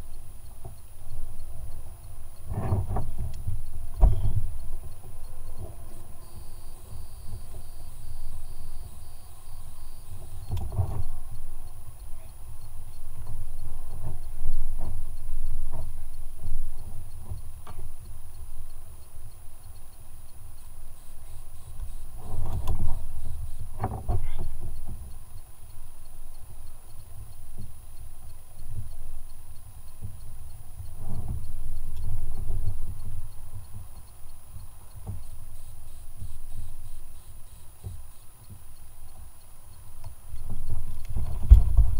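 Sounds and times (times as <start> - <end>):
low uneven rumbling: 40.4 - 41.9
water rumbling against kayak hull: 41.3 - 41.9.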